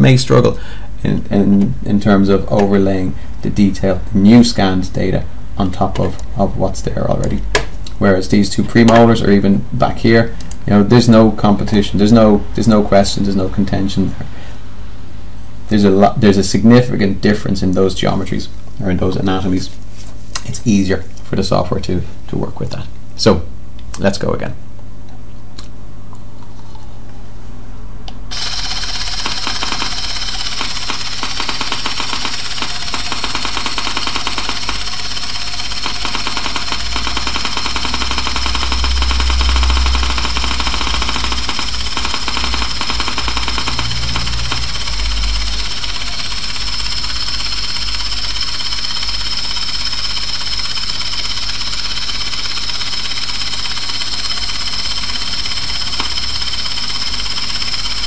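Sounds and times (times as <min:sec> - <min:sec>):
intraoral scanner buzzing: 0:28.3 - 0:58.0.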